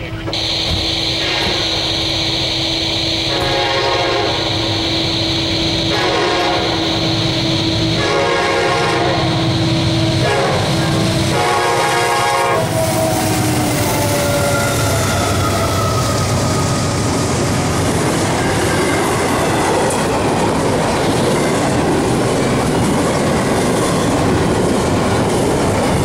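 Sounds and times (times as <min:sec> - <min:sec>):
locomotive air horn blasts: 0:00.3 - 0:15.4
train rumbling and clattering past: 0:02.8 - 0:26.0.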